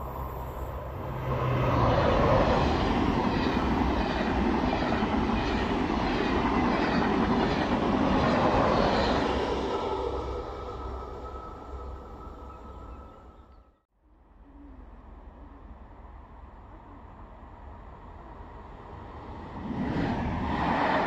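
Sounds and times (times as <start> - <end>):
high-speed train passing: 0.0 - 21.0.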